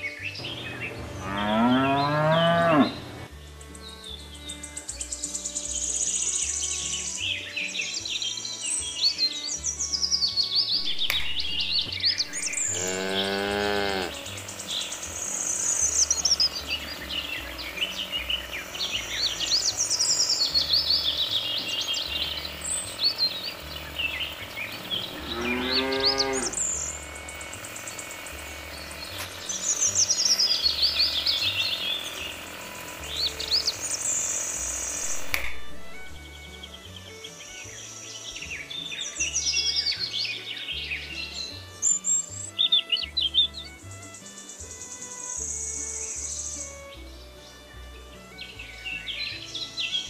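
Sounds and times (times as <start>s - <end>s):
birds chirping and twittering: 0.0s - 50.0s
cow mooing: 1.1s - 3.3s, 12.4s - 14.4s, 24.8s - 26.7s.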